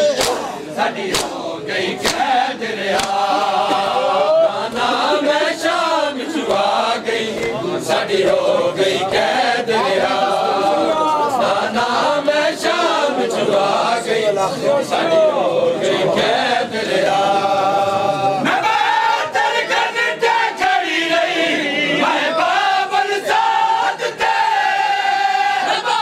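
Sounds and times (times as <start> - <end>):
men chanting together: 0.0 - 26.0
hands slapping chests: 0.1 - 4.0, 6.4 - 7.6.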